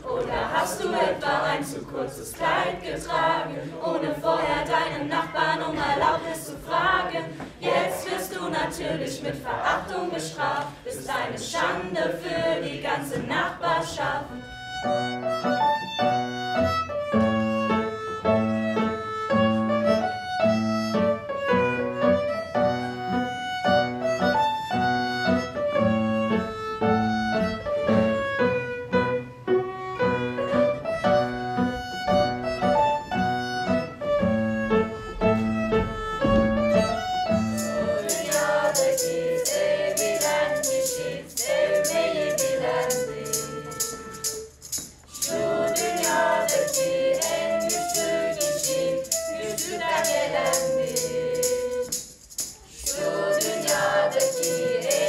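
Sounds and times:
young voices singing together: 0:00.0 - 0:14.5, 0:37.6 - 0:55.0
violin melody: 0:11.9 - 0:52.2
piano chords: 0:14.3 - 0:52.5
rattling percussion: 0:35.2 - 0:55.0.

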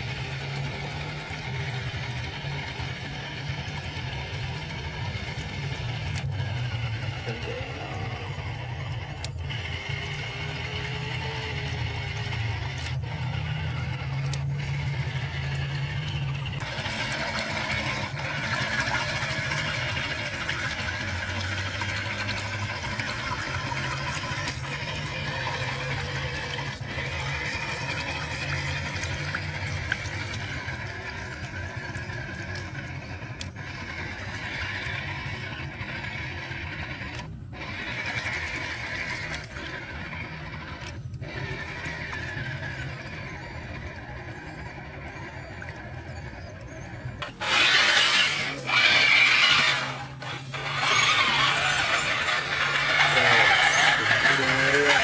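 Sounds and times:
rc car motor humming: 0:00.0 - 0:55.0
wheels splashing water: 0:00.0 - 0:55.0
tyres splashing through muddy water: 0:47.3 - 0:55.0.

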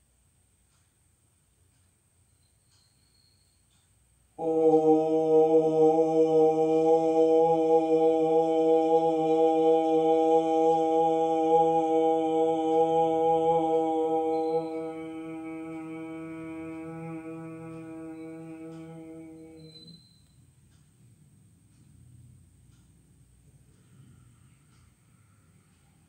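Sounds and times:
man chanting om: 0:04.4 - 0:20.0.

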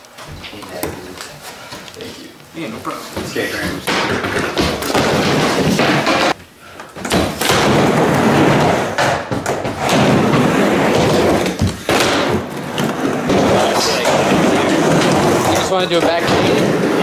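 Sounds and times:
skateboard wheels rolling on wood: 0:03.0 - 0:06.4, 0:07.0 - 0:17.0.

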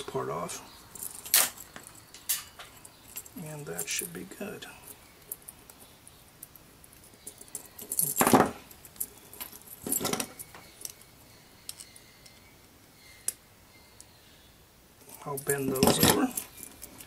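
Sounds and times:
metal chain clinking: 0:00.9 - 0:12.4, 0:15.0 - 0:17.0.

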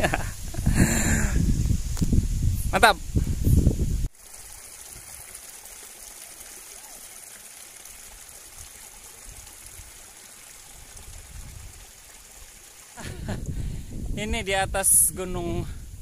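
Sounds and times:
strong wind hissing: 0:00.0 - 0:04.1, 0:10.7 - 0:12.0, 0:13.0 - 0:16.0
wind buffeting microphone: 0:00.0 - 0:04.1, 0:10.7 - 0:11.9, 0:13.0 - 0:16.0.

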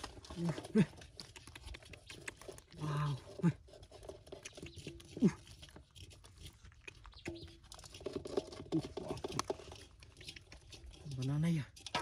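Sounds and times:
small wet crackles and clicks: 0:00.0 - 0:12.0.

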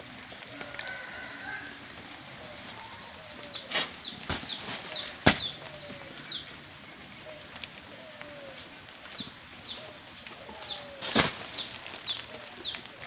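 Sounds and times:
birds chirping: 0:00.0 - 0:13.0
low falling bird notes: 0:02.4 - 0:13.0
heavy thump: 0:04.3 - 0:05.5.

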